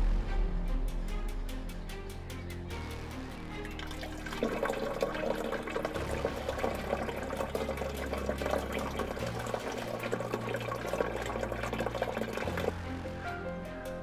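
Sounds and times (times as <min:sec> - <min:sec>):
water splashing into watering can: 0:03.7 - 0:12.7.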